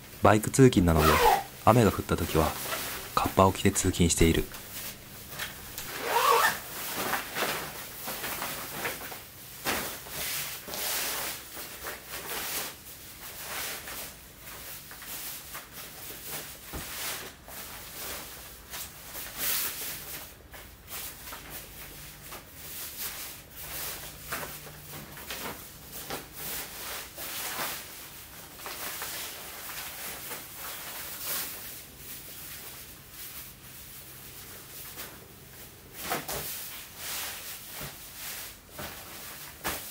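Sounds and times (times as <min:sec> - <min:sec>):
rain clothes rustling: 0:00.7 - 0:06.5.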